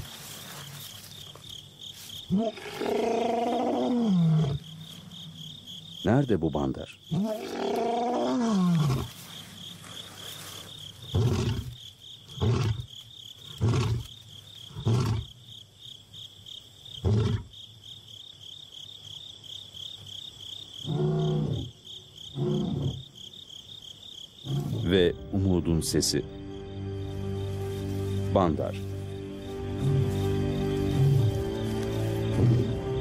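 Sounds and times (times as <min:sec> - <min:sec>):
insects chirping: 0:00.0 - 0:33.0
lion roaring: 0:02.3 - 0:04.7, 0:07.1 - 0:09.1, 0:20.8 - 0:21.7, 0:22.4 - 0:23.0.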